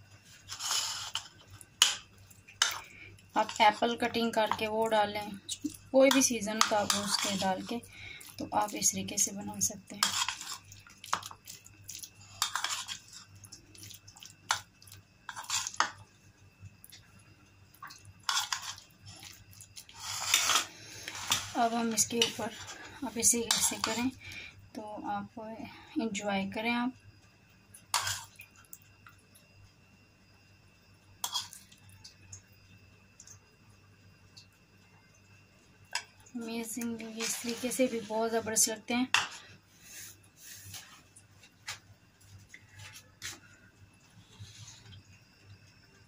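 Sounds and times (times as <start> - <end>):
faint clicks and squishes: 0.0 - 24.3
faint steady hum: 0.0 - 46.0
spoon scraping a plate: 0.4 - 2.0, 6.1 - 7.7, 10.0 - 11.3, 12.3 - 13.2, 15.3 - 16.0, 18.2 - 18.8, 19.9 - 24.0, 27.9 - 28.3, 31.2 - 31.6, 37.1 - 38.1
spoon scraping filling on bread: 6.6 - 7.6, 10.0 - 13.9, 15.3 - 16.0, 18.2 - 18.8, 19.8 - 21.6.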